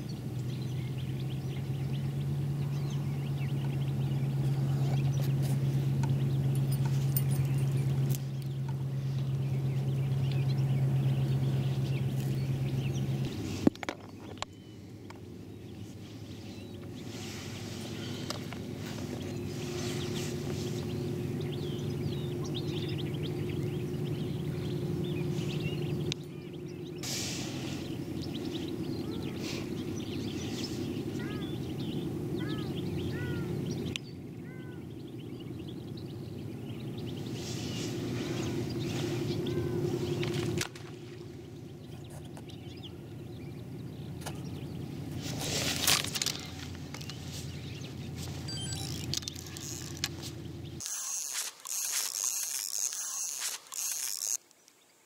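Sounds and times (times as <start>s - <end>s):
steady low hum: 0.0s - 54.4s
small birds chirping: 0.0s - 55.0s
hissing rush: 27.0s - 28.2s.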